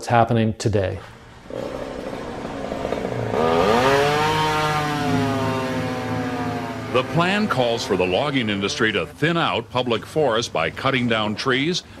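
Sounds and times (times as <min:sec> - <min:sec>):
chainsaw revving: 0:01.1 - 0:09.3.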